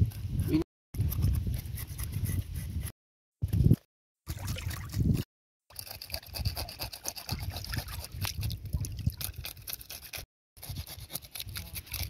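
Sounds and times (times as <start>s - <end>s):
small water splashes: 4.3s - 5.0s
knife scraping fish scales: 5.0s - 12.0s.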